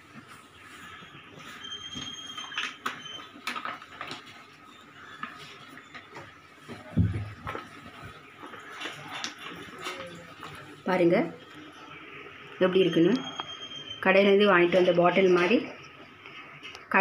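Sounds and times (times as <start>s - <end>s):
light clicks and knocks of containers: 6.0s - 10.8s.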